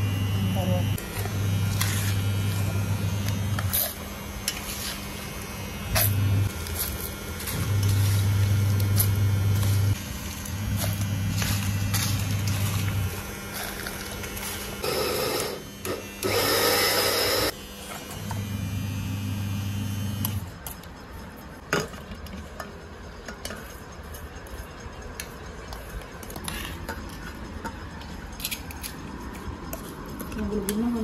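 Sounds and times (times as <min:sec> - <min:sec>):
mixer grinder motor grinding: 0:00.0 - 0:20.5.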